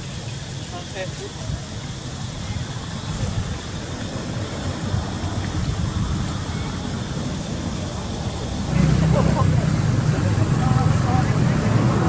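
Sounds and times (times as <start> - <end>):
even hiss: 0.0 - 12.0.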